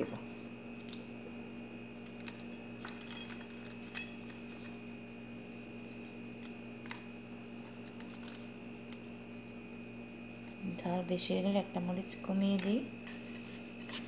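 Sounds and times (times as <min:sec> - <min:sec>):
faint steady hum: 0:00.0 - 0:14.0
dried chillies crackling: 0:02.0 - 0:10.8.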